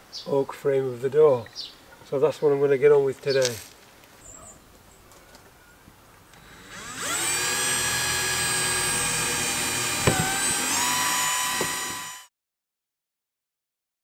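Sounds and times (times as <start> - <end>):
power drill drilling into wood: 6.4 - 12.3.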